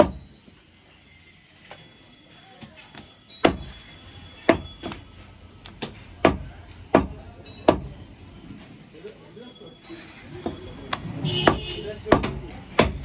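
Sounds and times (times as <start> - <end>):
cleaver chopping on wooden block: 11.4 - 13.0.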